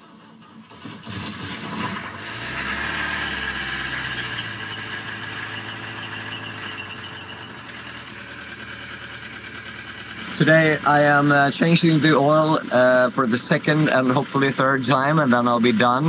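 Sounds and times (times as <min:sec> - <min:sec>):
marine diesel engine idling: 0:04.8 - 0:16.0.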